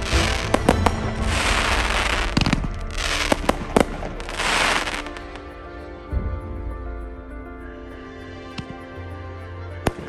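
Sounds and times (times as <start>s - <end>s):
fireworks bangs: 0.0s - 5.5s
crackling hiss of fireworks: 0.0s - 6.3s.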